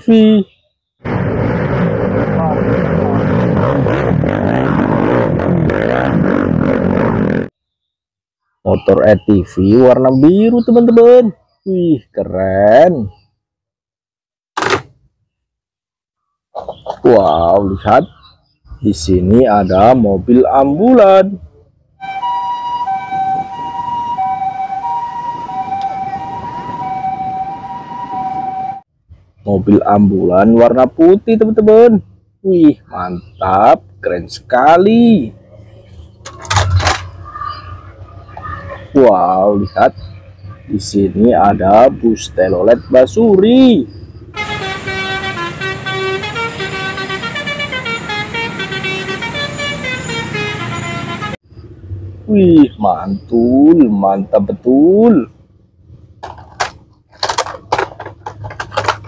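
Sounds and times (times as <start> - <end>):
faint traffic rumble: 16.6 - 59.0
bus horn playing a tune: 22.0 - 28.8, 44.4 - 51.4
two-tone ambulance siren: 22.0 - 28.8, 44.3 - 51.4.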